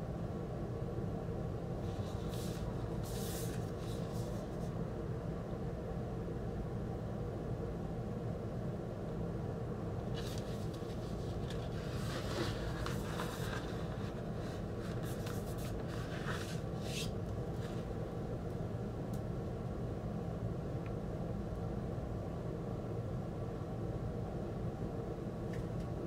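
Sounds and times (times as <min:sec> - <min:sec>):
cardboard and paper sleeve rustling: 0:01.8 - 0:04.7, 0:10.1 - 0:17.9.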